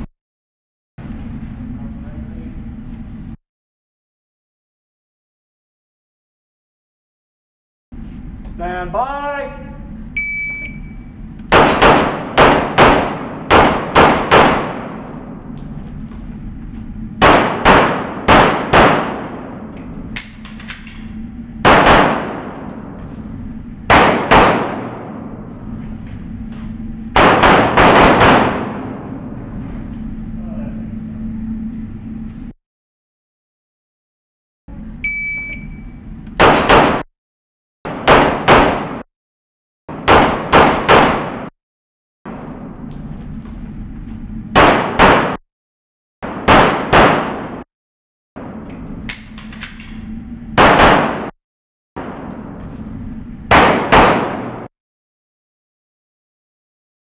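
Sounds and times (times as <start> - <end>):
electronic timer beep: 10.2 - 11.1, 35.0 - 36.0
pistol shots echoing indoors: 11.5 - 15.4, 17.2 - 23.1, 23.8 - 25.6, 27.1 - 29.4, 36.4 - 37.1, 37.9 - 39.0, 39.9 - 41.5, 44.6 - 45.4, 46.2 - 47.7, 50.6 - 51.4, 52.0 - 52.6, 53.5 - 54.7.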